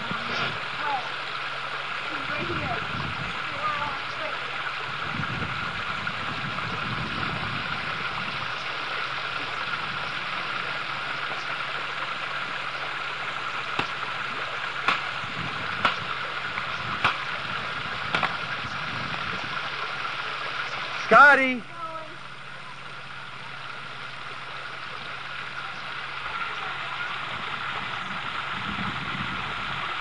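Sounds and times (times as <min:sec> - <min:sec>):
water rushing at a dam: 0:00.0 - 0:30.0
sharp knocks: 0:14.8 - 0:15.1, 0:17.0 - 0:17.3, 0:18.1 - 0:18.4.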